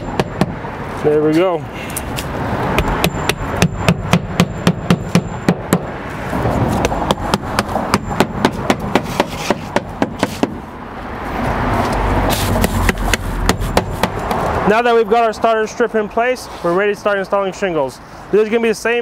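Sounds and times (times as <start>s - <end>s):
hammer tapping roofing nails: 2.8s - 5.9s, 6.8s - 10.6s.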